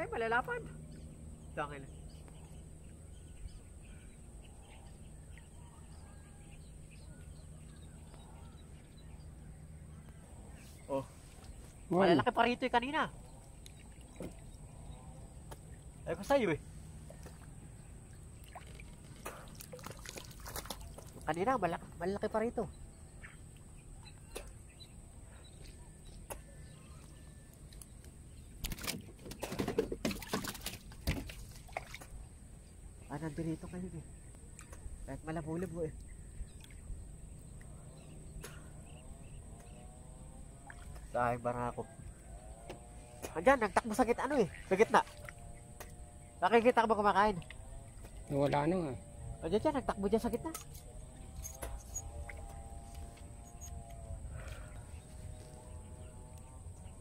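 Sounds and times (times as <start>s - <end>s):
fish splashing and knocking: 13.7s - 14.6s, 18.4s - 21.3s, 28.6s - 32.2s
faint bird chirps: 47.4s - 57.0s.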